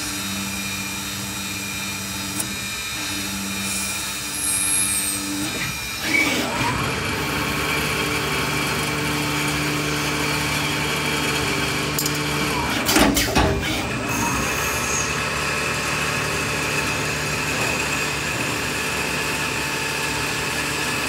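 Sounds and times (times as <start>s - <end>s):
lathe spindle cutting metal: 0.0s - 12.9s, 13.5s - 21.0s.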